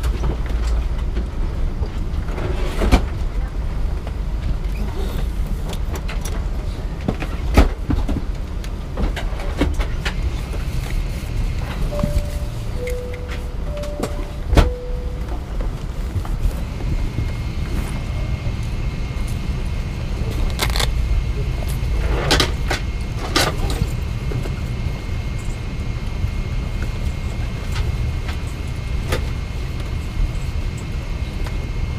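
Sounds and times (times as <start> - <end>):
aircraft cabin low rumble: 0.0 - 31.9
faint high whine: 11.6 - 21.9.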